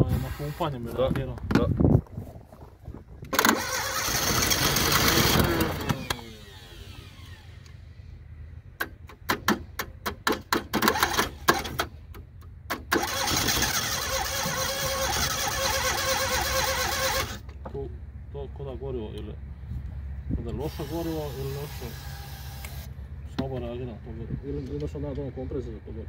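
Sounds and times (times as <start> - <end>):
car engine starting and running: 3.1 - 26.0
engine popping irregularly: 3.3 - 7.7, 8.7 - 17.8.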